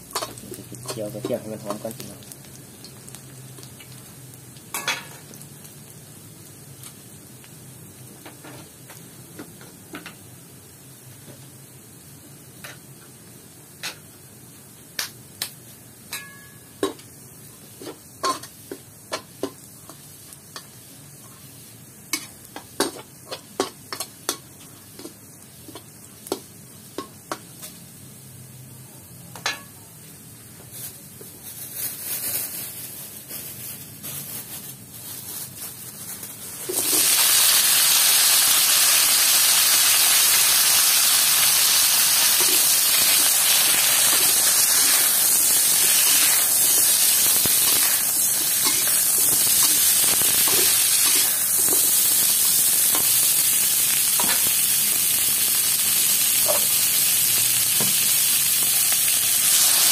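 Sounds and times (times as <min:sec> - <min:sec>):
garlic sizzling in oil: 0:00.0 - 0:59.9.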